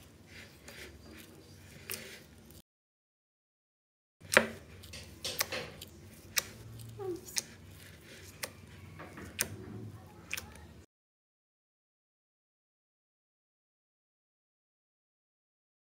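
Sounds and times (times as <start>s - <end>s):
fingers squishing slime: 4.2s - 10.8s.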